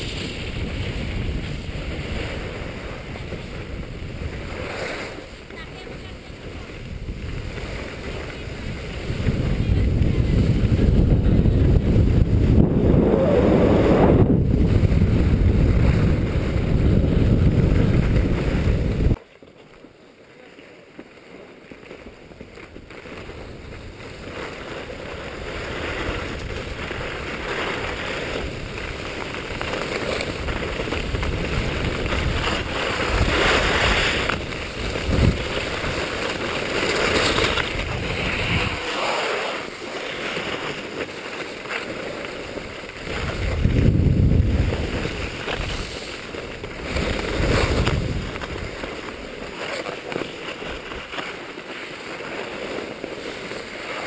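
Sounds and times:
wind buffeting microphone: 0.0s - 19.2s, 23.2s - 39.0s, 42.6s - 49.3s
skis scraping over snow: 0.0s - 54.0s.

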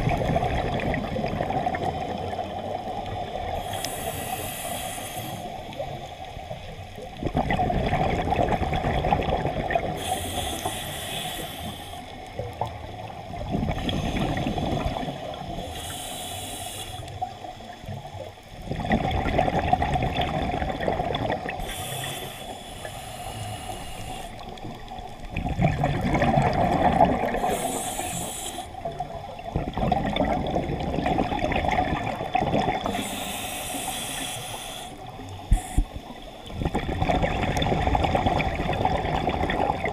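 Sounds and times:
exhaled bubbles underwater: 0.0s - 39.9s
regulator inhale hiss: 3.4s - 6.0s, 9.9s - 12.5s, 13.8s - 17.8s, 21.5s - 25.0s, 27.2s - 29.1s, 32.8s - 36.5s.

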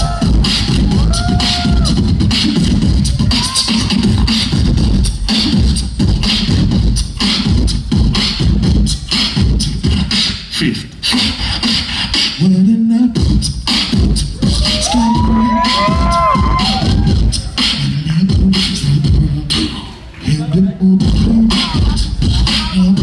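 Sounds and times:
beatboxing into microphone: 0.0s - 23.0s.

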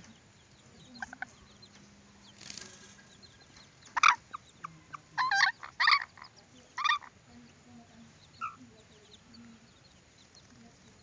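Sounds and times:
bird squawks: 3.9s - 7.2s, 8.4s - 8.7s.

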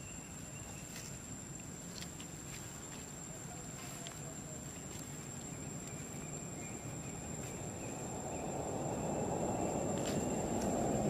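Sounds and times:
low rumbling noise: 5.6s - 11.0s.

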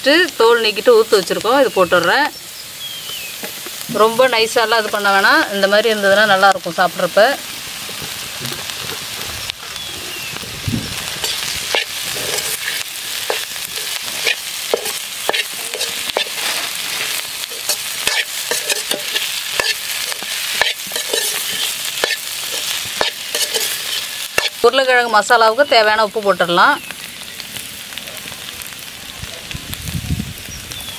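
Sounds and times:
steady sizzle: 0.0s - 30.9s
spatula scraping metal pan: 11.0s - 24.6s.

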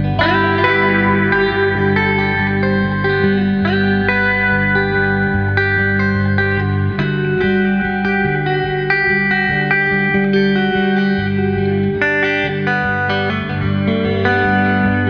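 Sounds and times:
plucked guitar music: 0.0s - 15.0s.

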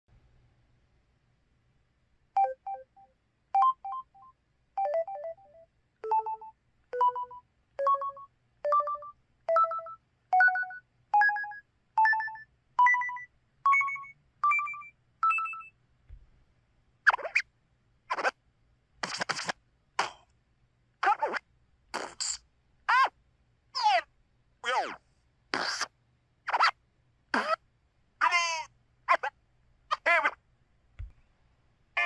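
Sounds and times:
phone keypad tones: 2.4s - 15.7s.

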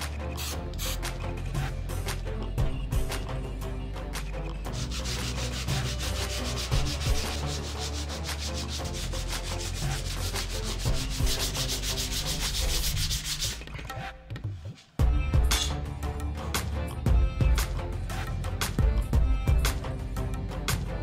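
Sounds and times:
sanding block rubbing on brass: 4.7s - 13.8s.

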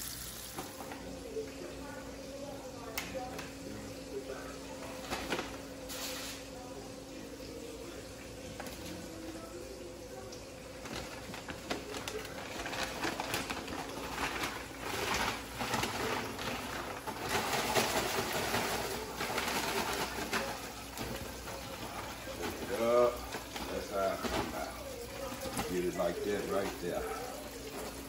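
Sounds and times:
paper bag rustling and crinkling: 4.8s - 6.4s, 10.7s - 28.0s.

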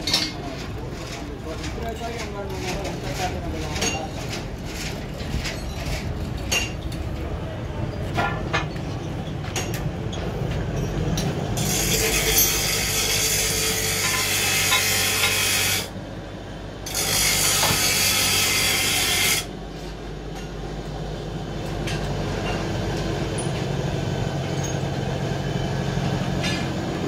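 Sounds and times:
harsh hissing metal cutting: 11.6s - 15.9s, 16.9s - 19.5s.

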